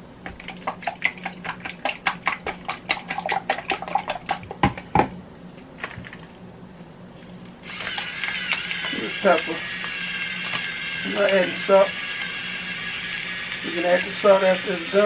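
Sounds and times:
whisk clicking in plastic cup: 0:00.2 - 0:04.9.

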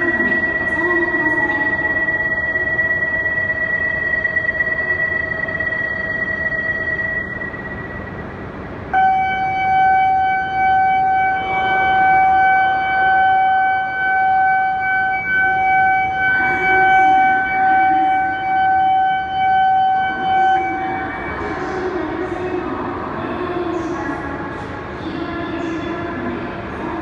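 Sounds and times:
electronic departure bell ringing: 0:02.4 - 0:22.4.

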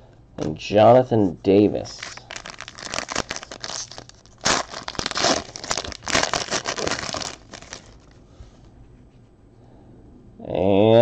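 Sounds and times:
foil wrapper tearing and crinkling: 0:01.9 - 0:08.2.

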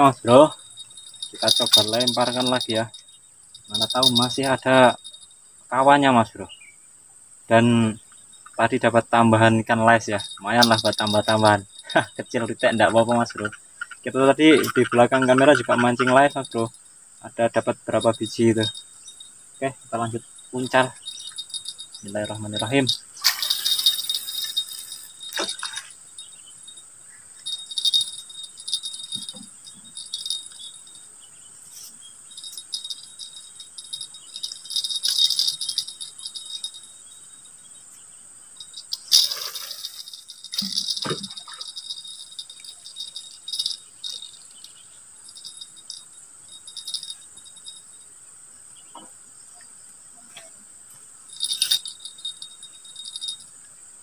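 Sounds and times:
crickets chirping: 0:00.0 - 0:54.0
fishing reel rattling and clicking: 0:01.1 - 0:03.0, 0:03.7 - 0:04.7, 0:10.0 - 0:14.0, 0:20.7 - 0:26.0, 0:27.5 - 0:30.7, 0:32.4 - 0:36.8, 0:38.8 - 0:44.4, 0:51.3 - 0:53.4.

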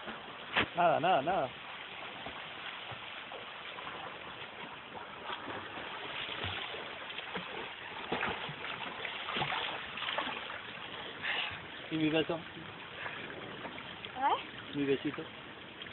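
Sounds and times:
swimming strokes splashing water: 0:00.0 - 0:15.9.

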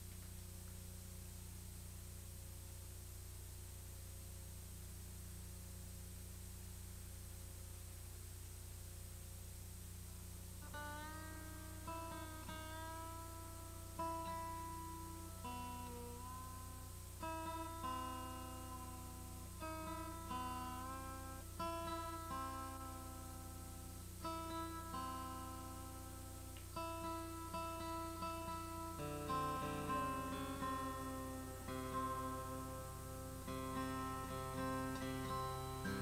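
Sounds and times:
acoustic guitar strings plucked: 0:10.6 - 0:36.0.

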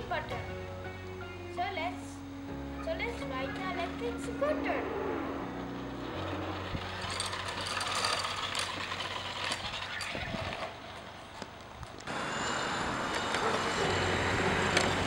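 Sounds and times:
electric scooter motor hum: 0:03.5 - 0:15.0
wheels rolling on concrete: 0:05.2 - 0:15.0.

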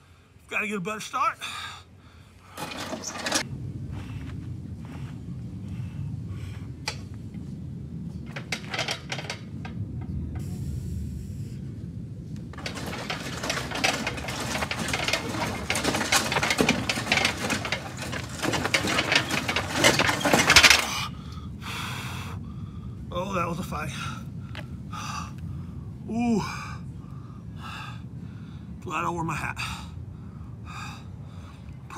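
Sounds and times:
heavy load crunching over gravel: 0:12.5 - 0:21.0.

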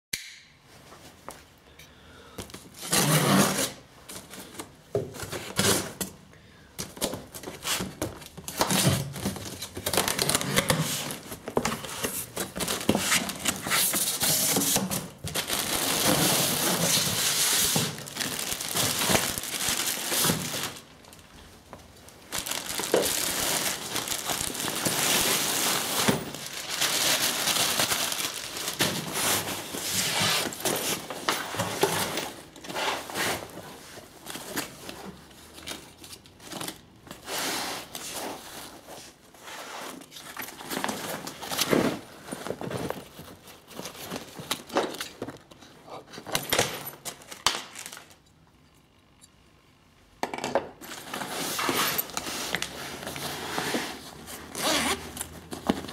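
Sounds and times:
plastic bag crinkling: 0:09.3 - 0:32.6.

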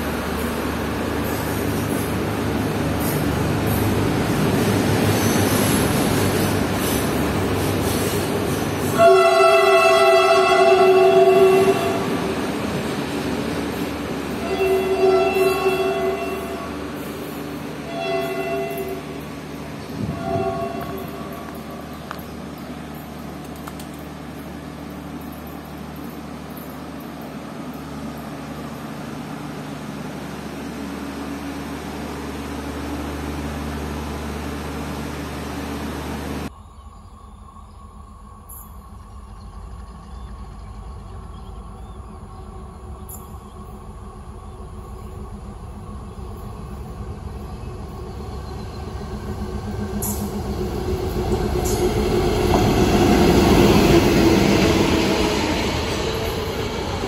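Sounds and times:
diesel locomotive passing: 0:00.0 - 0:57.0
train coaches rumbling on track: 0:00.0 - 0:57.0
mechanical hum with low drone: 0:32.0 - 0:51.8.

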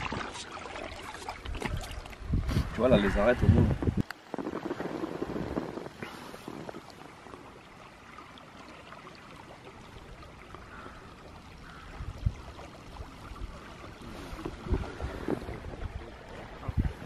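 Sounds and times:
river water lapping and trickling: 0:00.0 - 0:17.0.

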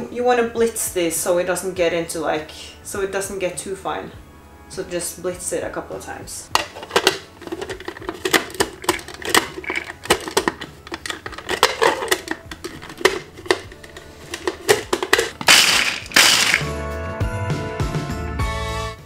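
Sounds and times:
plastic lid clicking and rattling: 0:06.5 - 0:16.7
food processor motor chopping nuts: 0:07.6 - 0:16.7.

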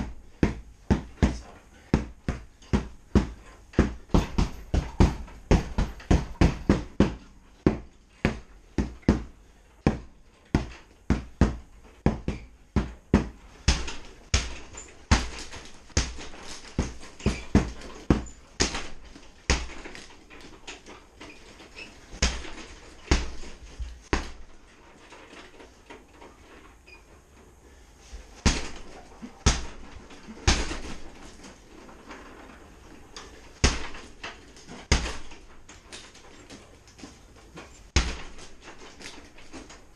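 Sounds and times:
punching bag thuds: 0:00.0 - 0:20.1, 0:22.1 - 0:24.5, 0:28.4 - 0:31.3, 0:33.5 - 0:35.6, 0:37.9 - 0:39.7.

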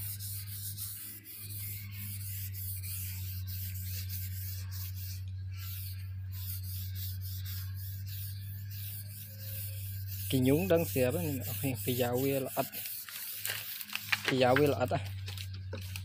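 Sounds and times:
steady low hum: 0:00.0 - 0:16.0
paintbrush swishing on wood: 0:09.9 - 0:14.9.

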